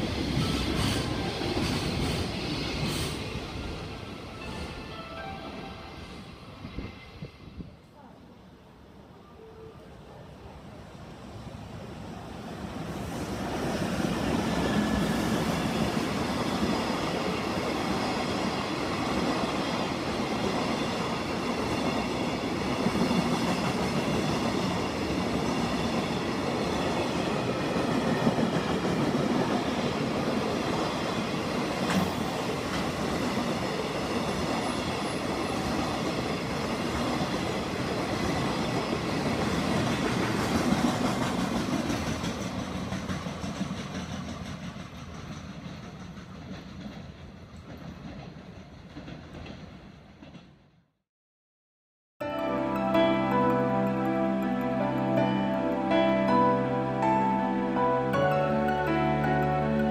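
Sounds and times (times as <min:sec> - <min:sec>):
train wheels running on rails: 0:00.0 - 0:07.4, 0:12.5 - 0:50.8.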